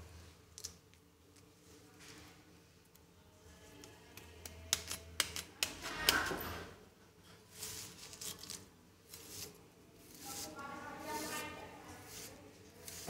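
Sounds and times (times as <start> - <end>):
knife scraping bamboo shoot: 7.5 - 13.0.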